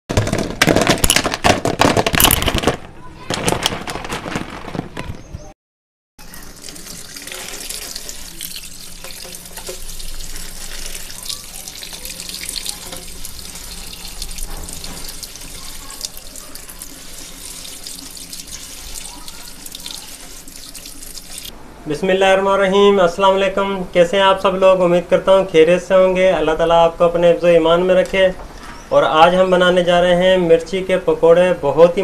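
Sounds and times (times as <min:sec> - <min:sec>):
chillies clattering into colander: 0:00.1 - 0:05.3
tap water running into colander: 0:06.2 - 0:21.5.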